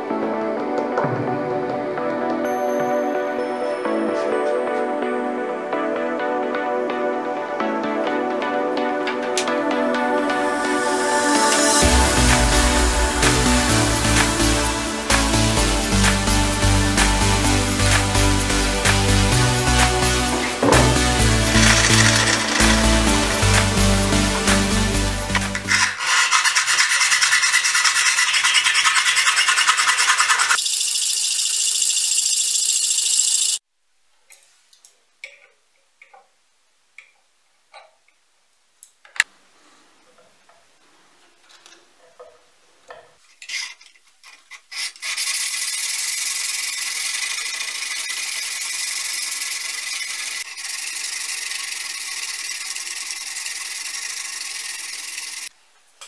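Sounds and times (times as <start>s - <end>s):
file rasping on steel: 25.6s - 30.6s.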